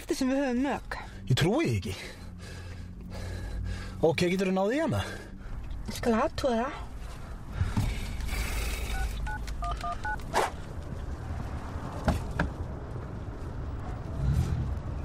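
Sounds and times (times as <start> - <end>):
steady low rumble: 0.0 - 15.0
phone keypad tones: 8.9 - 10.2.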